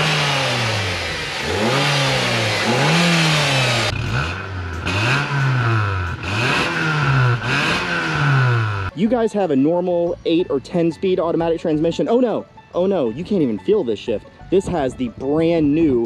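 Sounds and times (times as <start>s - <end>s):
van engine revving: 0.0s - 9.0s.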